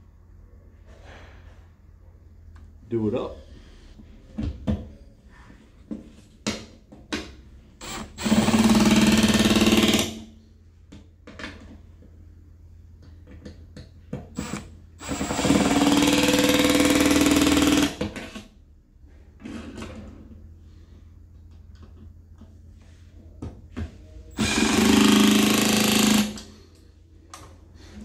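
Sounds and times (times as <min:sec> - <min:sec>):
cordless drill motor whine: 0:14.4 - 0:15.8.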